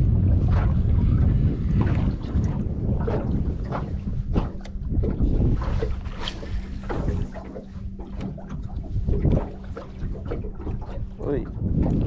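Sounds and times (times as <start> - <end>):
boat engine low hum: 0.0 - 12.0
wind rumbling on microphone: 0.0 - 12.0.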